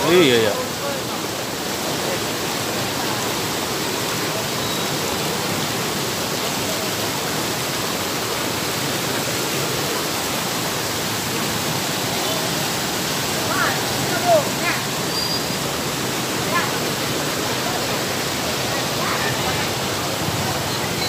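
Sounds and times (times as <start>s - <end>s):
floodwater rushing: 0.0s - 21.0s.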